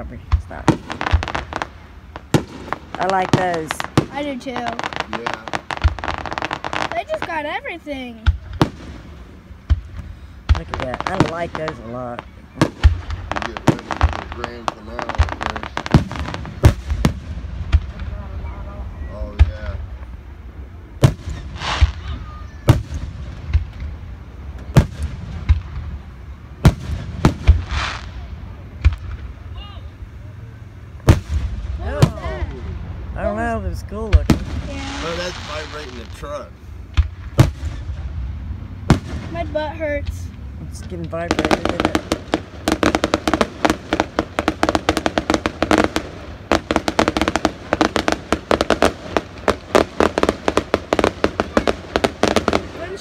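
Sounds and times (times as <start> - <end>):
firework hiss: 0.4 - 30.3, 30.9 - 40.3, 41.1 - 53.0
firework shells bursting: 21.0 - 24.0, 38.8 - 53.0.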